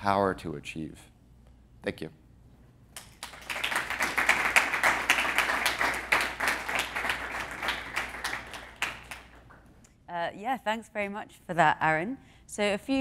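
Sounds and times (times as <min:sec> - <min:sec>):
audience applauding: 0:03.0 - 0:09.7.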